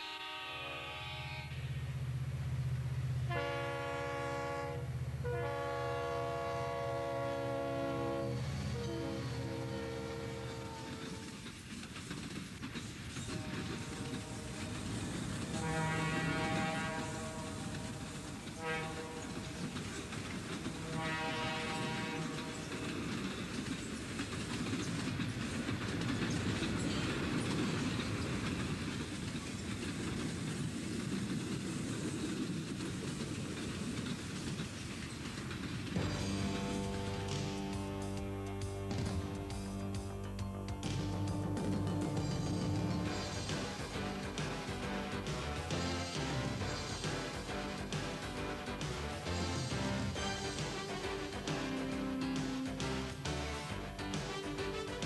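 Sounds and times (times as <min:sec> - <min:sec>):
train horn blasts: 0:00.0 - 0:02.0, 0:03.2 - 0:11.5, 0:13.3 - 0:20.0, 0:20.6 - 0:22.9, 0:36.0 - 0:55.0
train rumbling: 0:00.0 - 0:55.0
wheels clicking over rails: 0:08.4 - 0:55.0.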